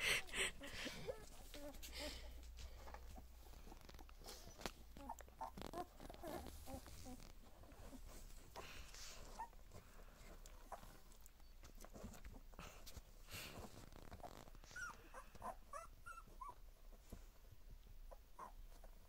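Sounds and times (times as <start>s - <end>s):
soft scuffling: 0.8s - 14.9s
puppies whimpering: 3.2s - 9.9s, 14.5s - 16.6s.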